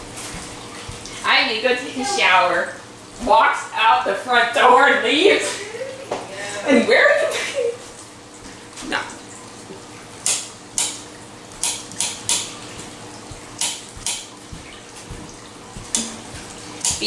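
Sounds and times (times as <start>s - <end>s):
knife chopping on cutting board: 13.6s - 17.0s.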